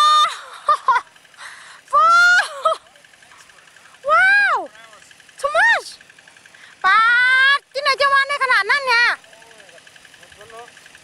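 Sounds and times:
child crying out: 1.9 - 2.6.

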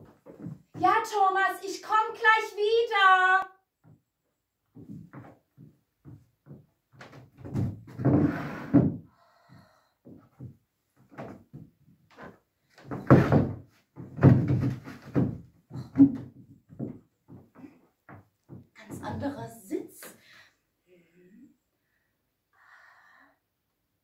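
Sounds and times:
wooden chair knocks and thumps: 4.8 - 9.0, 10.1 - 19.3.

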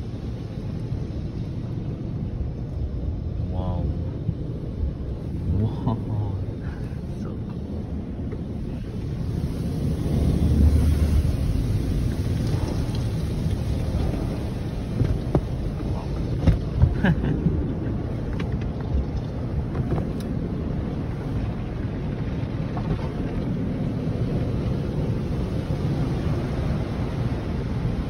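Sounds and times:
car wash water spray rumble: 0.0 - 28.0.

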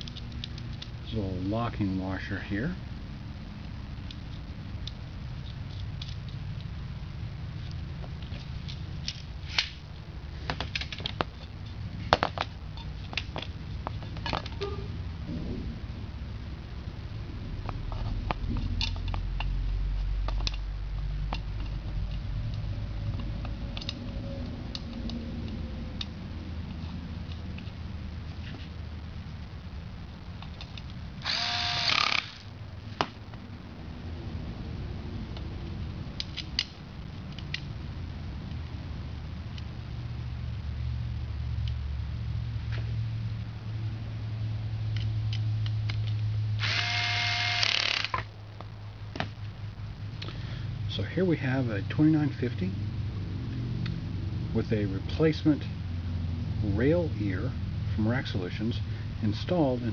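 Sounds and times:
steady low hum: 0.0 - 59.9
cordless drill driving screw: 31.2 - 32.4, 46.6 - 48.2.

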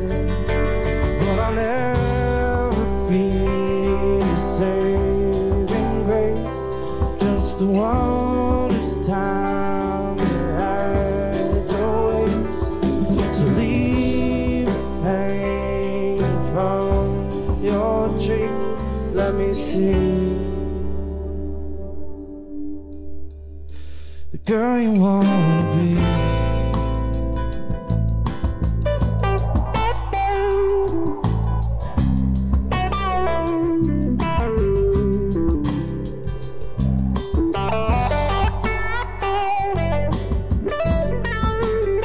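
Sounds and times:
drums and cymbals: 0.0 - 20.4, 26.0 - 42.0
strummed acoustic guitar: 0.0 - 20.9
electric guitar: 0.0 - 24.1, 25.0 - 42.0
bass guitar: 0.0 - 42.0
keyboard: 0.0 - 42.0.

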